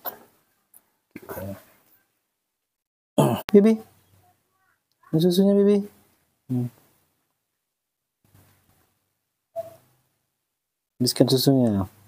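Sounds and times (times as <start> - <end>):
monkey squeak: 9.6 - 9.8.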